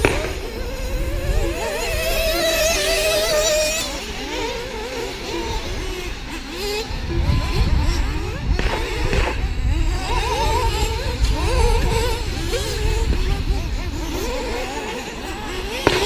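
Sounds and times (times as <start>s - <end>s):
model car motors whining: 0.0s - 16.0s
wind rumble on microphone: 0.0s - 16.0s.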